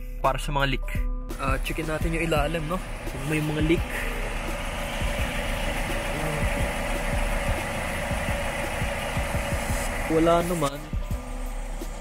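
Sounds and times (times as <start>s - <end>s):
car engine idling: 1.3s - 12.0s.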